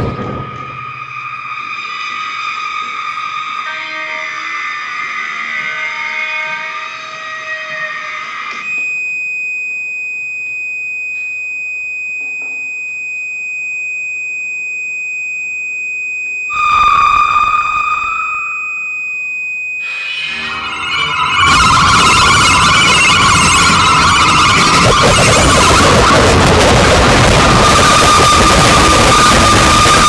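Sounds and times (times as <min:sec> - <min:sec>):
rough lower note: 0:00.0 - 0:02.4, 0:16.5 - 0:18.9, 0:19.9 - 0:30.0
dense loud sound cluster: 0:00.0 - 0:05.4, 0:16.5 - 0:19.0, 0:19.8 - 0:30.0
high steady pure tone: 0:00.0 - 0:05.7, 0:08.5 - 0:30.0.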